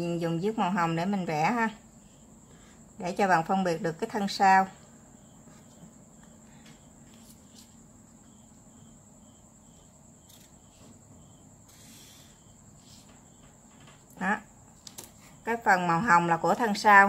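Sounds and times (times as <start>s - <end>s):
marker scratching on paper: 11.7s - 13.1s.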